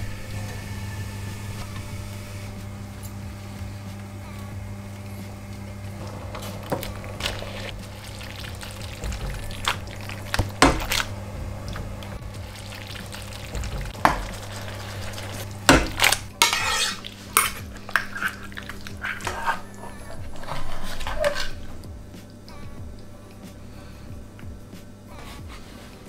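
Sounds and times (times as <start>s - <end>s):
utensil scraping a cooking pan: 0.0s - 21.9s
steady low hum: 0.0s - 26.0s.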